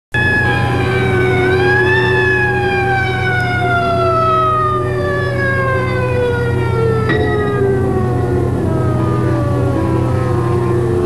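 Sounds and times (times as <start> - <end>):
emergency vehicle siren wailing: 0.1 - 11.0
steady low hum: 5.2 - 11.0.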